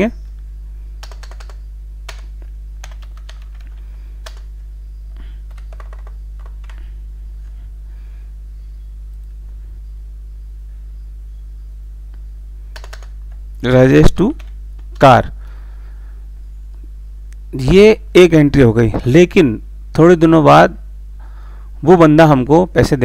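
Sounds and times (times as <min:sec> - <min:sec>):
low electrical hum: 0:00.0 - 0:23.0
keyboard keystrokes: 0:01.0 - 0:04.5, 0:05.5 - 0:06.8, 0:12.8 - 0:13.4.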